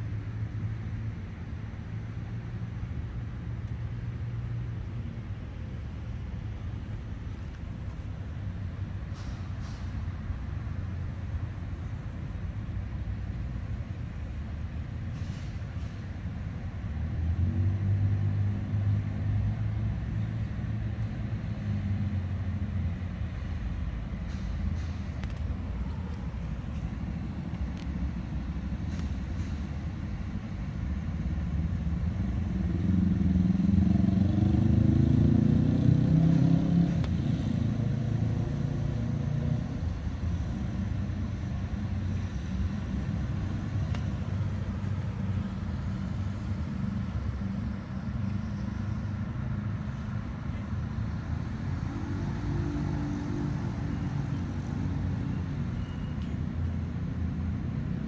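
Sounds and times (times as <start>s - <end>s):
rumble of passing traffic: 0.0s - 58.0s
vehicle accelerating past: 32.4s - 39.9s.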